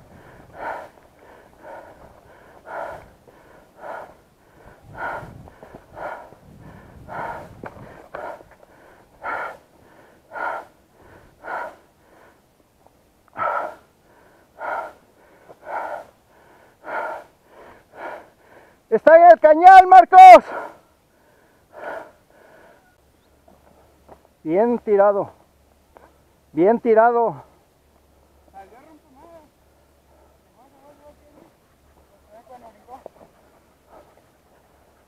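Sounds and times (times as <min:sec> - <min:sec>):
person breathing hard: 0:00.0 - 0:12.6, 0:13.3 - 0:18.9, 0:20.4 - 0:23.0, 0:29.6 - 0:30.6, 0:33.2 - 0:35.0.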